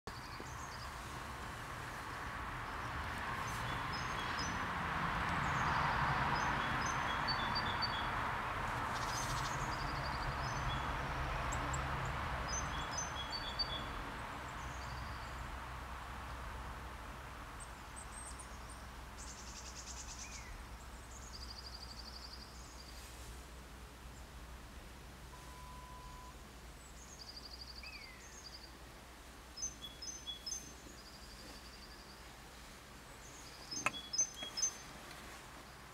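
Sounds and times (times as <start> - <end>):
small birds chirping: 0.1 - 1.2, 1.8 - 4.6, 8.9 - 11.8, 12.5 - 15.5, 17.6 - 23.0, 26.7 - 28.8, 29.4 - 35.9.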